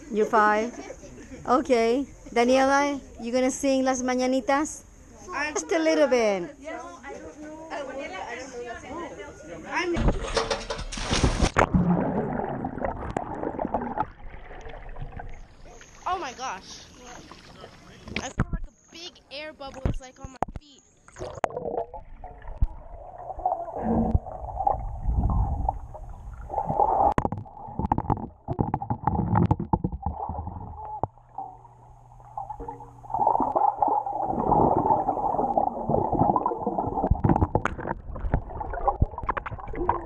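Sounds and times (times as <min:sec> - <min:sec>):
muffled underwater gurgling: 0:21.2 - 0:40.0.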